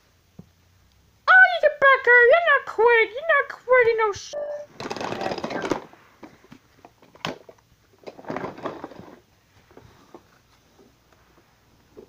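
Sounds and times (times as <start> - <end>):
plush toys rustling: 4.7 - 12.0.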